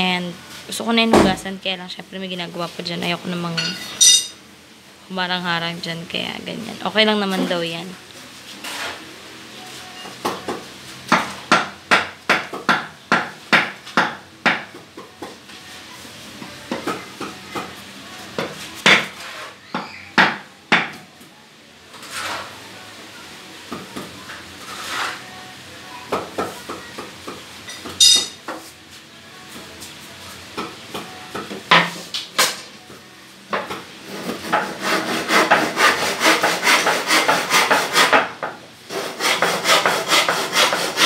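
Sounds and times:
hammer strikes: 3.6s - 4.4s, 10.2s - 15.4s, 27.8s - 28.4s.

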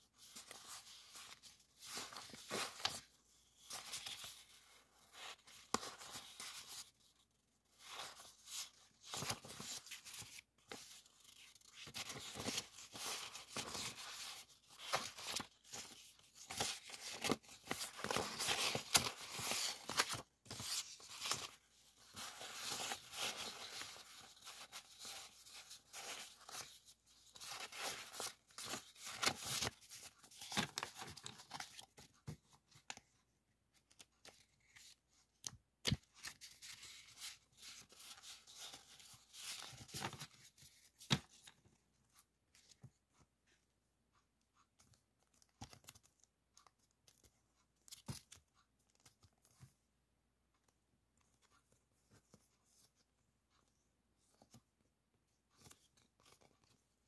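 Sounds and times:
papers rustling and crinkling: 0.0s - 43.3s.

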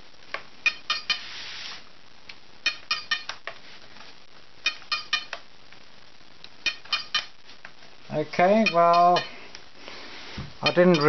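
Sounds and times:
sharp ringing clicks: 0.6s - 1.2s, 2.6s - 3.4s, 4.6s - 5.4s, 6.6s - 7.4s, 8.5s - 9.4s, 10.6s - 11.0s.

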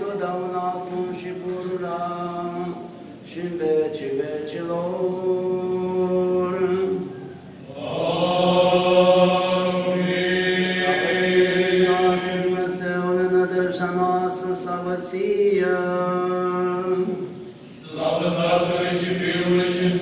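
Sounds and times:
choir chanting long notes: 7.7s - 12.9s, 17.7s - 20.0s.

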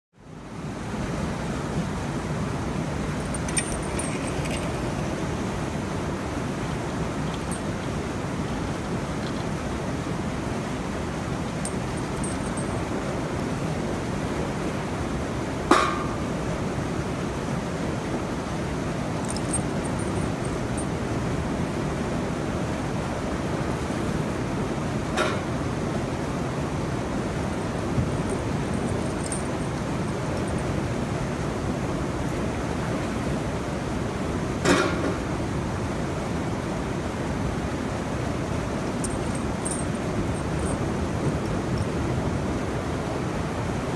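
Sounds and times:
river water rushing: 0.3s - 34.8s, 35.4s - 43.9s
light metallic clinks: 3.2s - 5.1s, 7.3s - 8.0s, 11.6s - 13.0s, 19.2s - 21.0s, 28.0s - 30.8s, 39.0s - 42.0s.

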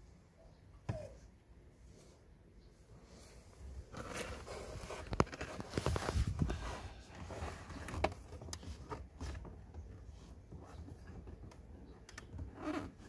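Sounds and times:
rustling scrape of air filter: 3.0s - 11.2s.

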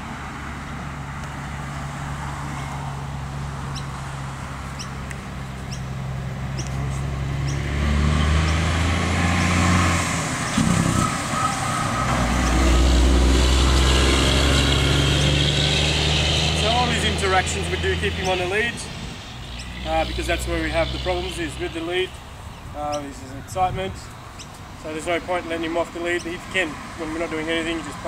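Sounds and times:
vehicle engine humming: 0.0s - 28.0s.

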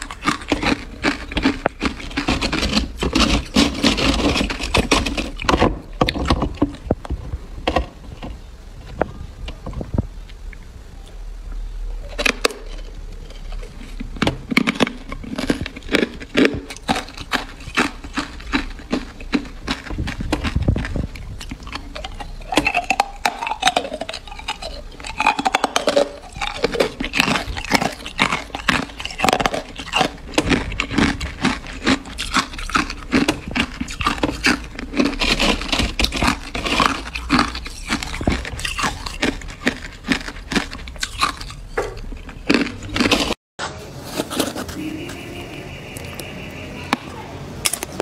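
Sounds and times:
ice crunching and cracking: 0.0s - 7.0s, 12.1s - 43.4s.

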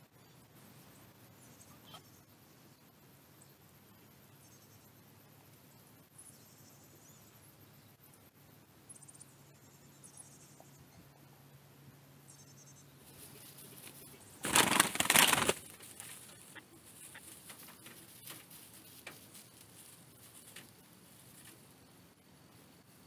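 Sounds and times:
birds rustling in straw: 13.0s - 22.1s.

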